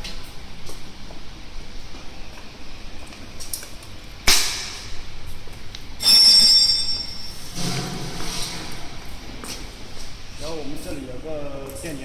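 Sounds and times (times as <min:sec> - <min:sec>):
high whistling hiss: 0:06.0 - 0:07.6.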